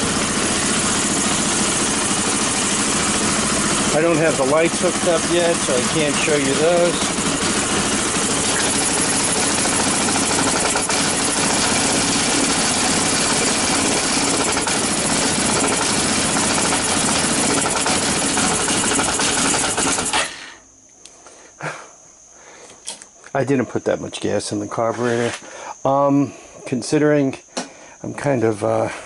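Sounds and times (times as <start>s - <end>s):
quad bike engine running: 0.0s - 20.3s.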